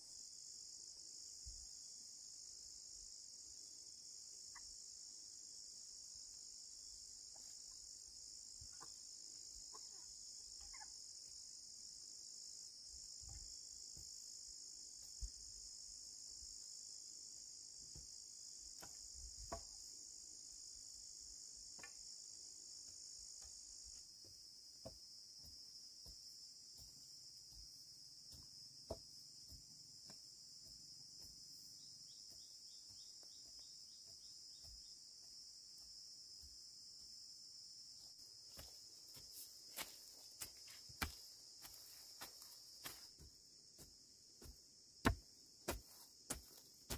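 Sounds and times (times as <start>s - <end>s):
high shrill insect chorus: 0.0s - 46.9s.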